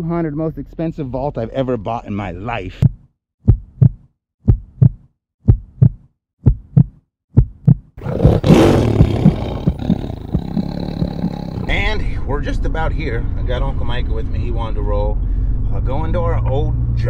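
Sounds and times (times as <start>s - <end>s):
heartbeat-like double thumps: 2.8s - 11.7s.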